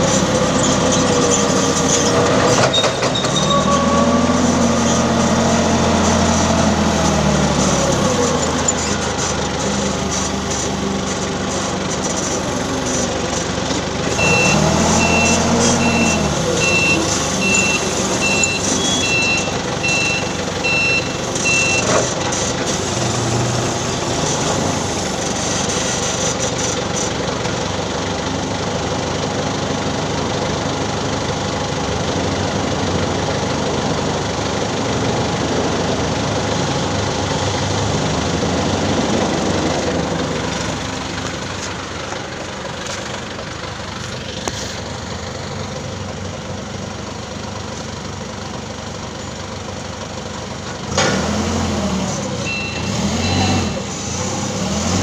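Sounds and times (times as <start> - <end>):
forklift engine running: 0.0 - 55.0
reversing alarm beeping: 14.1 - 21.9, 52.4 - 53.9.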